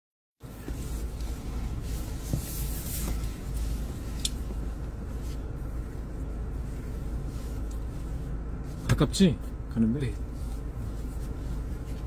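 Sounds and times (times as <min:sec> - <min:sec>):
rustle: 0:00.4 - 0:09.1
car cabin rumble: 0:00.4 - 0:12.0.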